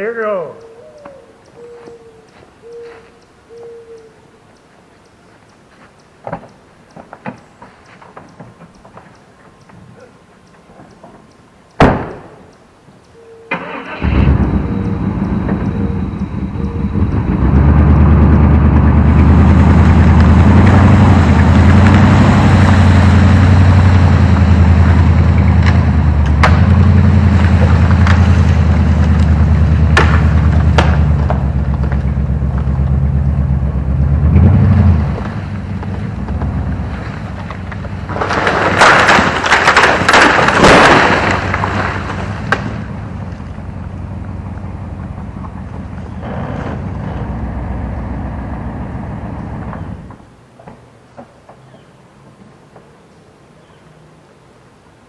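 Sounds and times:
truck engine starting and running: 13.5 - 50.2
branches breaking crash: 19.0 - 33.0, 34.4 - 43.6.

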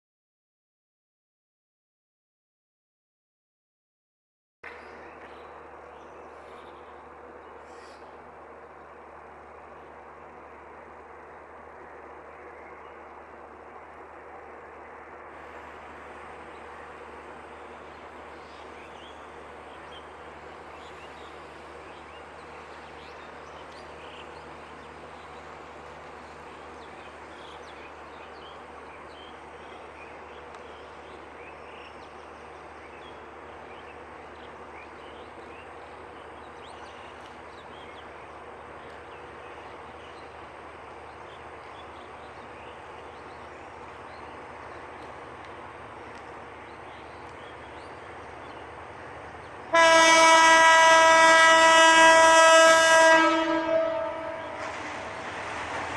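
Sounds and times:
diesel locomotive rumble: 4.7 - 55.9
locomotive air horn chord: 49.7 - 54.8.

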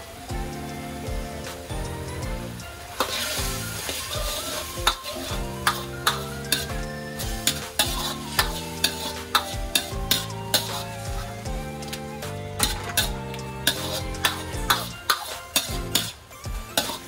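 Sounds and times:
background music: 0.0 - 17.0
food sizzling: 0.0 - 17.0
metal ladle scraping a wok: 3.0 - 11.0, 12.6 - 16.2, 16.8 - 17.0.

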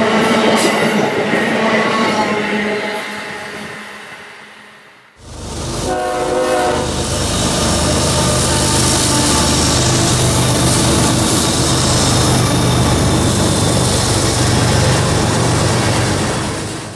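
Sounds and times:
locomotive engine drone: 5.2 - 16.9
wheels rumbling on rail: 5.2 - 16.9
train horn blast: 5.7 - 11.3.

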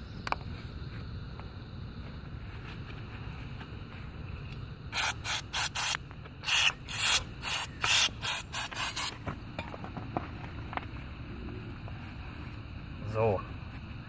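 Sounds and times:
aerosol can hissing bursts: 4.9 - 9.2.

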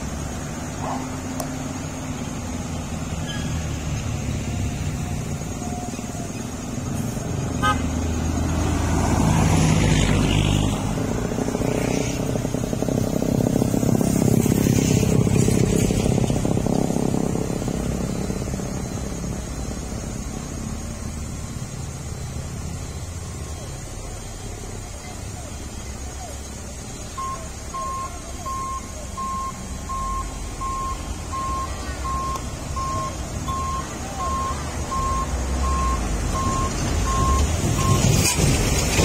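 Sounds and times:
motorcycle engine: 0.0 - 24.8
road traffic passing: 0.0 - 39.0.

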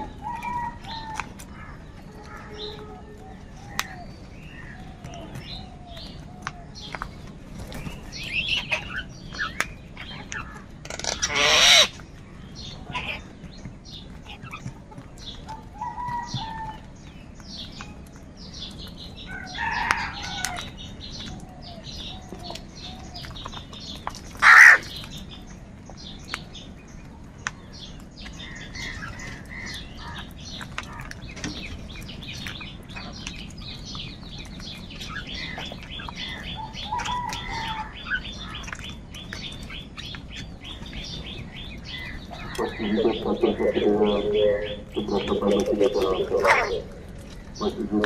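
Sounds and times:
crows cawing: 0.0 - 4.8, 8.5 - 12.0, 24.4 - 25.0, 28.4 - 31.2, 35.1 - 38.8, 41.9 - 48.0.

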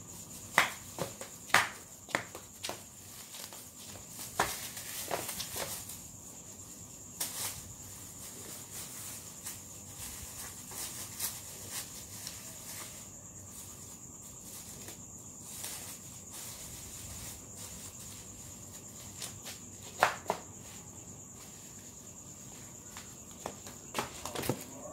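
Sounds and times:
high-pitched insect trill: 0.0 - 24.9
flip-flop steps on concrete: 0.5 - 5.9, 18.9 - 24.9.

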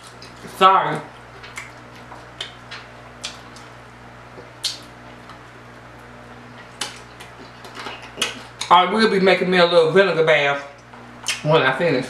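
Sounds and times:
faint steady hum: 0.0 - 12.0
wet mouth clicks and smacks: 1.4 - 1.8, 4.4 - 5.4, 6.6 - 8.7, 10.8 - 11.4.

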